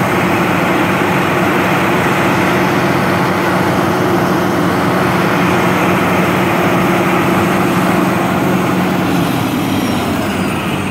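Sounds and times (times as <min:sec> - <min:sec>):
diesel engine running loudly: 0:00.0 - 0:10.9
rushing mechanical noise: 0:00.0 - 0:10.9.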